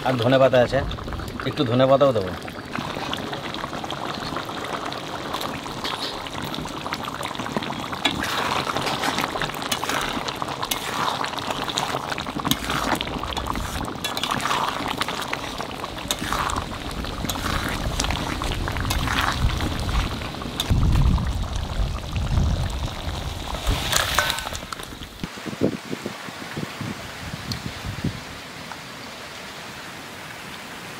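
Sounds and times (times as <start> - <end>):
curry bubbling at a boil: 0.0 - 25.3
ladle stirring thick gravy: 2.6 - 20.7.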